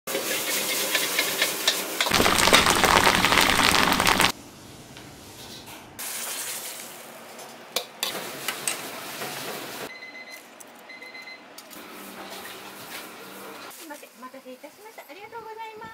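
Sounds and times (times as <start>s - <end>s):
food sizzling in hot oil: 2.1s - 4.3s.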